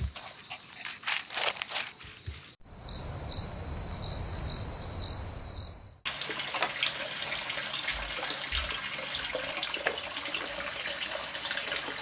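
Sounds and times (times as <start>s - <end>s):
scratchy rustling: 0.0s - 2.6s
cricket chirping: 0.0s - 6.1s.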